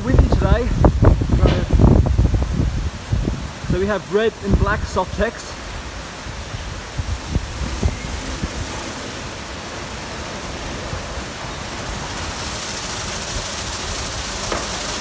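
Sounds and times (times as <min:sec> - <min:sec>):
car wash brushes and spray: 0:00.0 - 0:15.0
low thumps: 0:00.2 - 0:03.4.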